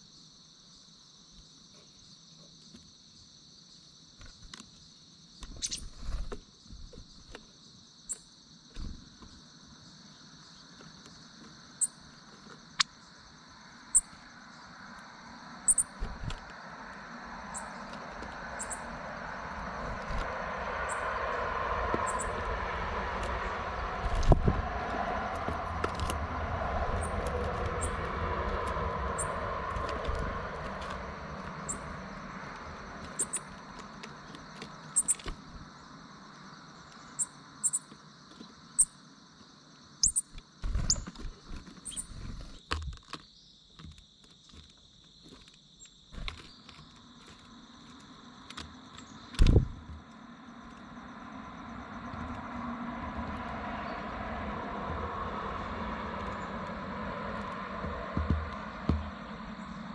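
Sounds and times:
high insect trilling: 12.6 - 38.0
vehicle passing on road: 13.0 - 37.7, 47.0 - 59.9
dull thumps: 57.8 - 59.4.

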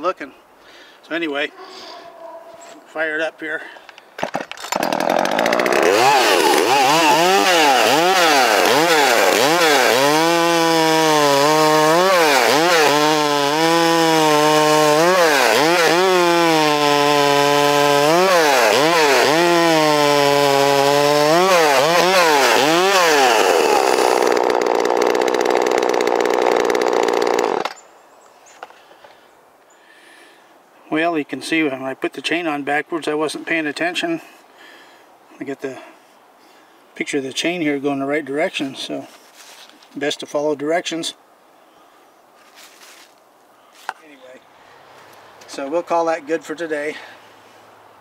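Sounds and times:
chainsaw cutting log: 4.2 - 27.8.

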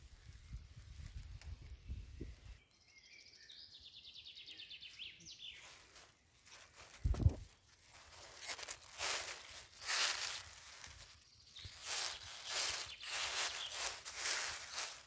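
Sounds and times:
footsteps in dry leaf litter: 0.0 - 1.4, 4.8 - 15.0
songbird trill: 0.0 - 6.6, 7.4 - 15.0.

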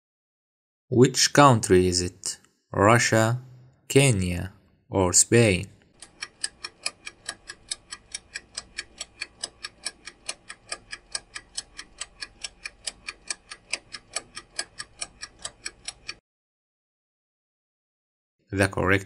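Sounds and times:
clock ticking fast: 5.9 - 16.2.

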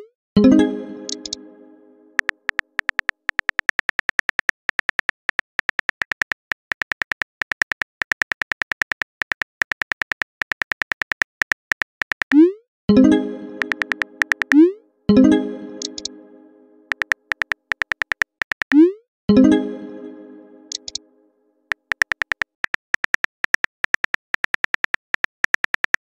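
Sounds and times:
plucked message tone: 0.4 - 2.2, 12.9 - 17.0, 19.3 - 21.1
phone keyboard clicks: 2.2 - 12.4, 13.6 - 14.6, 16.9 - 18.8, 20.7 - 21.0, 21.7 - 26.0.

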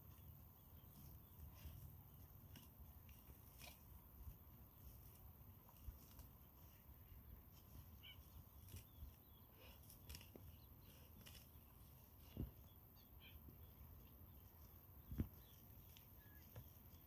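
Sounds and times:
faint bird chirps: 6.7 - 17.0.

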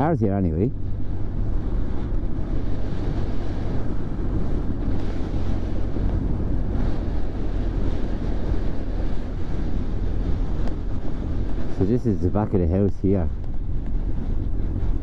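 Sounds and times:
wind buffeting microphone: 0.0 - 15.0
motorcycle engine running: 0.7 - 11.8.

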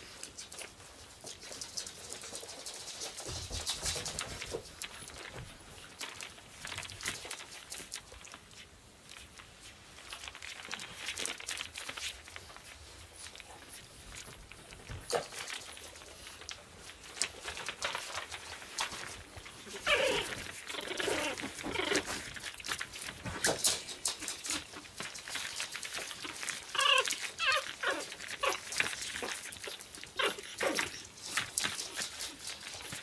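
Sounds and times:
paws crinkling on newspaper: 0.0 - 33.0
puppies whining and yipping: 19.7 - 22.3, 26.2 - 31.1.

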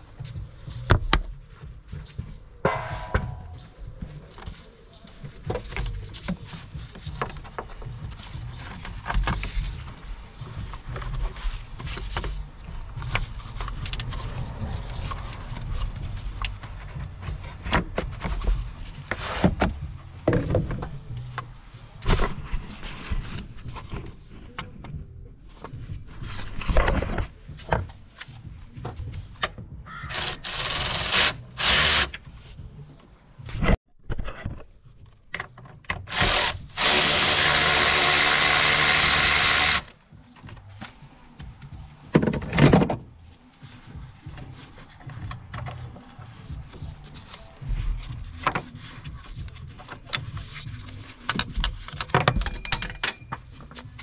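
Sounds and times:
hands and tools knocking and scraping: 0.1 - 31.0, 40.1 - 43.2, 43.8 - 54.0
cordless ratchet running: 30.1 - 32.1.

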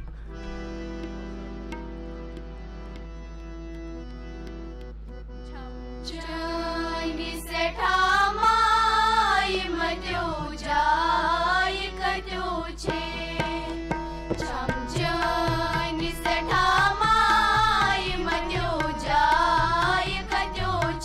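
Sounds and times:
harmonium drone: 0.0 - 21.0
tabla: 0.0 - 21.0
girls singing in unison: 6.1 - 21.0.

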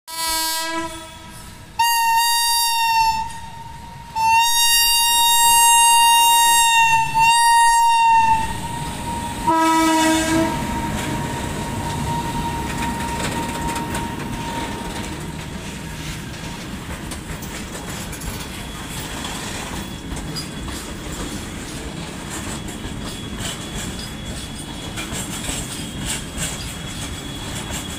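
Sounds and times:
electric locomotive horn blasts: 0.1 - 15.7
goods wagons rumbling by: 10.4 - 27.9.

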